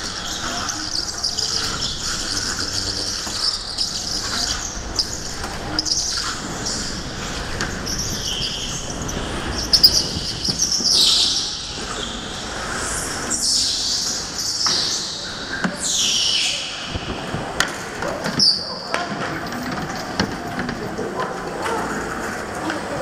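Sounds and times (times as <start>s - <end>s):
go-kart engine rumble: 0.0s - 13.6s
go-kart tyres squealing: 0.0s - 23.0s.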